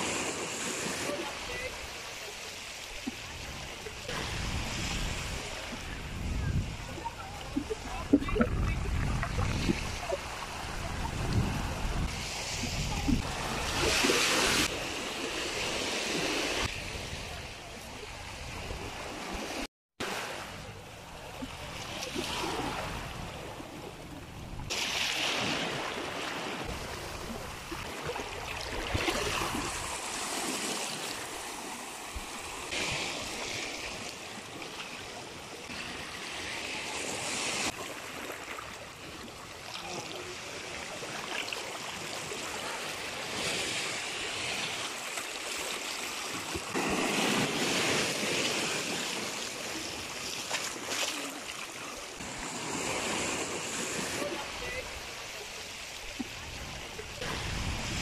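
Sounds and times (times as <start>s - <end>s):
waves washing over rocky shore: 24.6s - 58.0s.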